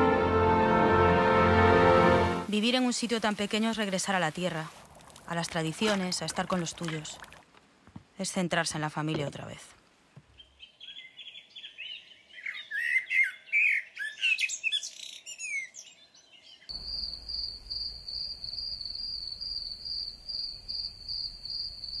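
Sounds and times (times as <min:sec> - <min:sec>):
pulsing high insect trill: 0:16.7 - 0:22.0.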